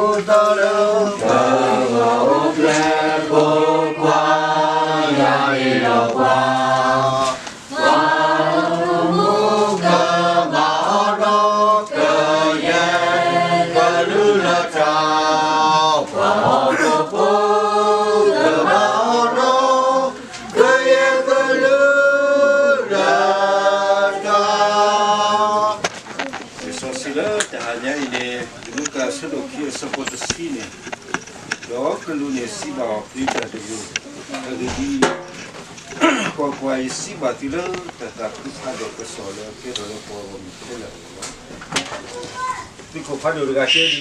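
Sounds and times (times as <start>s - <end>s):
group of people singing: 0.0s - 29.3s.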